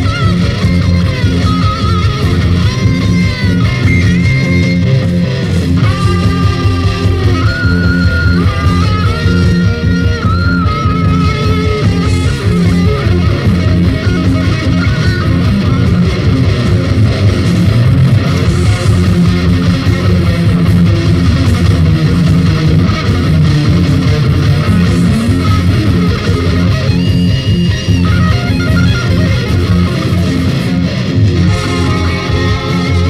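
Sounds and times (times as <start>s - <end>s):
rock band playing: 0.0s - 33.0s.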